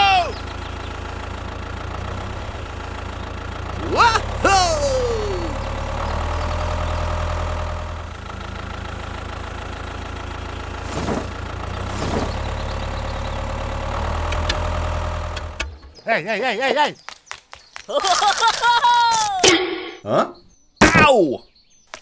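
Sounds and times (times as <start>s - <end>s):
tractor engine idling: 0.0s - 17.0s.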